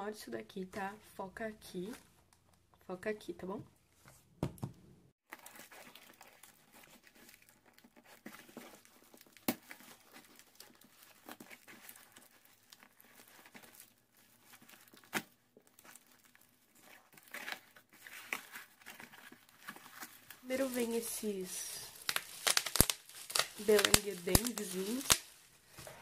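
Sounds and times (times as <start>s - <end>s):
bubble wrap crinkling: 5.2s - 26.0s
cardboard ripping: 5.3s - 26.0s
cardboard snapping: 21.9s - 26.0s.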